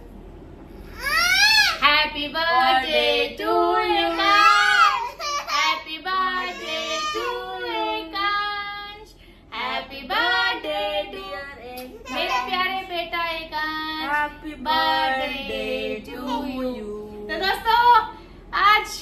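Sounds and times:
high child-like voices singing: 1.3 - 8.6, 9.6 - 13.4, 14.7 - 17.0.

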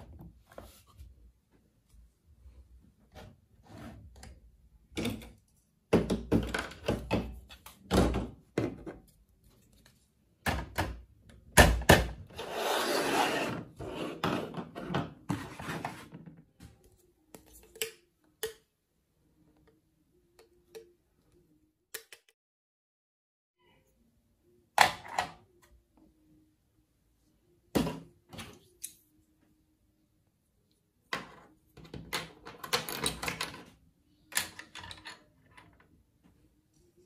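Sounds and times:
plastic rubbing scrape: 12.3 - 16.2.

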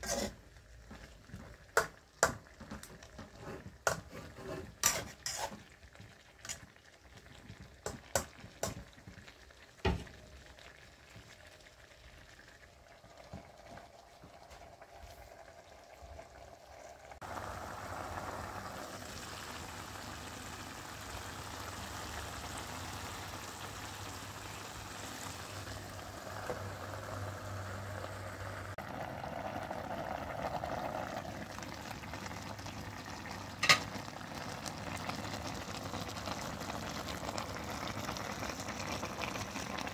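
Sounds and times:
curry simmering and bubbling: 0.0 - 39.9.

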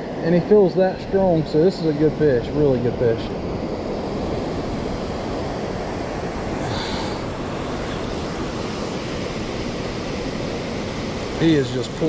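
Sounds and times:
wind on microphone: 0.0 - 12.0
river current rushing: 2.8 - 12.0.

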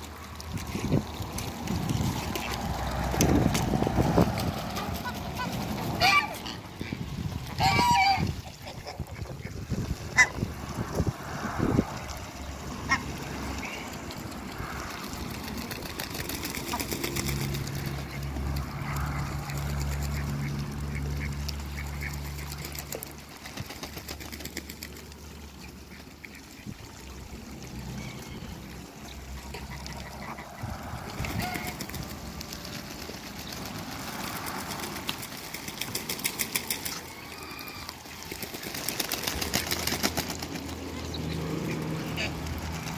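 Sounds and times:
ducks quacking: 0.5 - 15.7, 16.4 - 23.2, 25.5 - 32.2, 36.6 - 42.9
geese honking: 4.8 - 10.5, 29.4 - 31.9.

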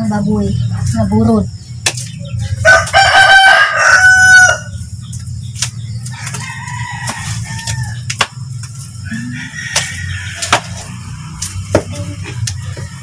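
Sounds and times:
rooster crowing: 2.6 - 4.8, 6.1 - 8.1, 9.0 - 11.2.

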